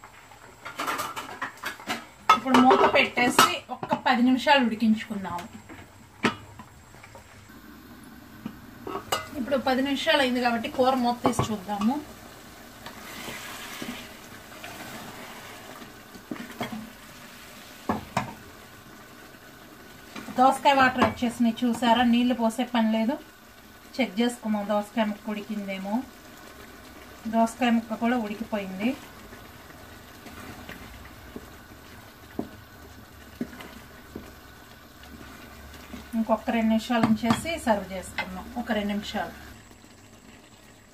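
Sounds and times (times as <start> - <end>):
curry bubbling in a pot: 5.4 - 40.9
spoon stirring bubbling curry: 29.0 - 36.1.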